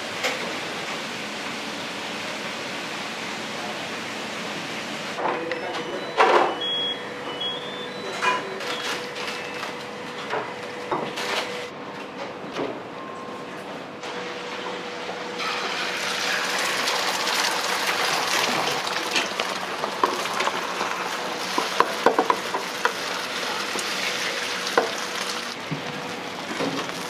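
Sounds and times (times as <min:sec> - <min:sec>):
rice sizzling in a pan: 0:15.4 - 0:25.5.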